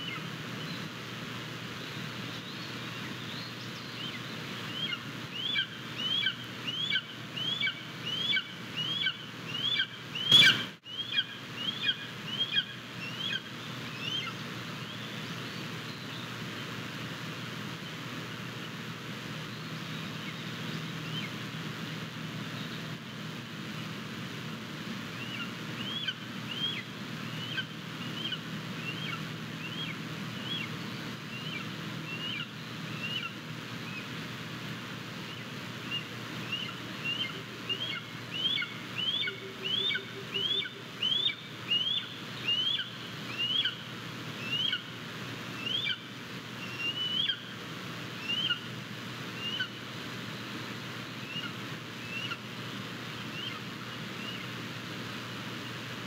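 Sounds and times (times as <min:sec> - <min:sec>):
background hiss: 0:00.0 - 0:56.0
eagle chirping calls: 0:03.9 - 0:14.4, 0:25.2 - 0:30.7, 0:35.3 - 0:43.8, 0:44.4 - 0:44.9, 0:45.6 - 0:46.0, 0:46.6 - 0:47.5, 0:48.2 - 0:48.7, 0:49.4 - 0:49.8, 0:51.2 - 0:52.4, 0:53.3 - 0:53.6.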